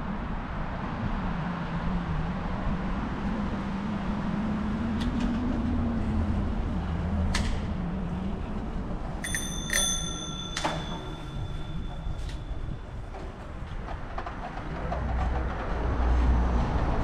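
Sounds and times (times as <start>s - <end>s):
riding and traffic rumble: 0.0s - 17.0s
bicycle bell ringing: 9.2s - 13.1s.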